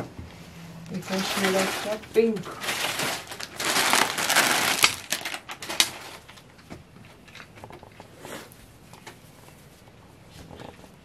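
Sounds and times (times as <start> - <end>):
fabric rustling: 1.0 - 6.2.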